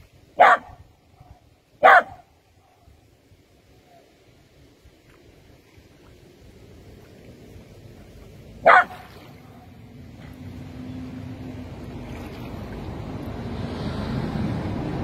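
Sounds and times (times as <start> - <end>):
water noise: 0.0 - 15.0
wind: 0.0 - 15.0
dog barking: 0.4 - 0.8, 1.8 - 2.3, 8.6 - 9.0.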